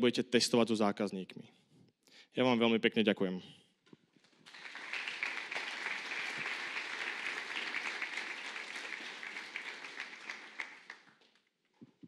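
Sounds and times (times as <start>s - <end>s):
audience applauding: 4.3s - 11.4s.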